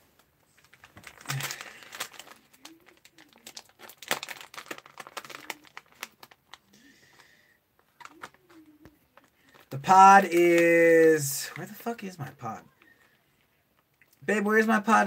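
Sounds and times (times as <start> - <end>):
small irregular clicks and crackles: 0.1 - 10.4, 12.7 - 14.2
packaging crinkling and rustling: 0.1 - 10.8.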